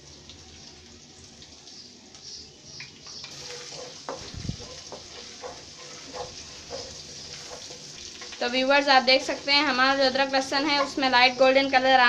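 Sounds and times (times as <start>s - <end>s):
garlic sizzling in oil: 0.0s - 12.0s
wooden spoon scraping pan: 3.4s - 8.4s.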